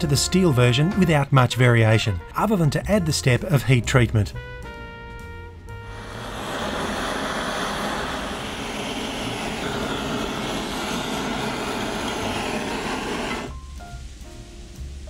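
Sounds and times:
gas torch rushing: 5.8 - 13.6
hot steel quenched in oil: 5.9 - 13.5.

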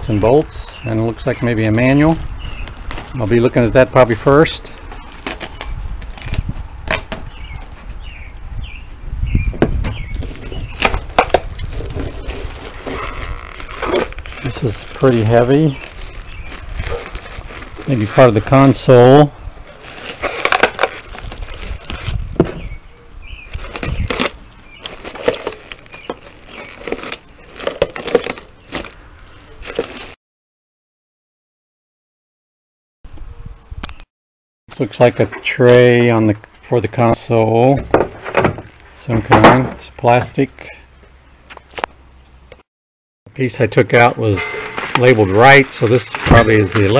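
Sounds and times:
plastic wrap crinkling: 1.1 - 7.8, 10.1 - 22.4, 23.4 - 29.0, 29.6 - 30.2, 44.4 - 46.9.

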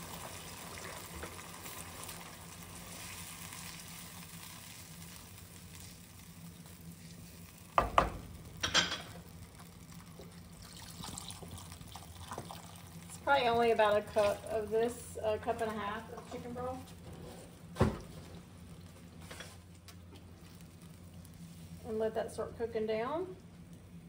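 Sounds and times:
food sizzling in a saucepan: 0.0 - 17.5.

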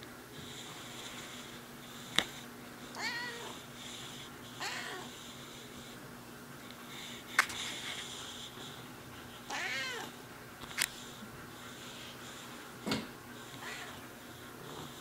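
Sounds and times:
cat meowing: 3.0 - 3.6, 4.6 - 5.1, 9.5 - 10.1, 13.6 - 14.0.

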